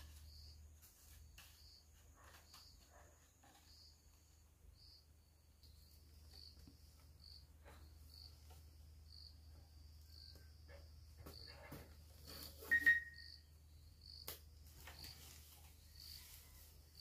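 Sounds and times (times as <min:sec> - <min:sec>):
insect chirping: 0:00.0 - 0:11.5, 0:12.2 - 0:17.0
short sharp squeak: 0:12.2 - 0:13.3.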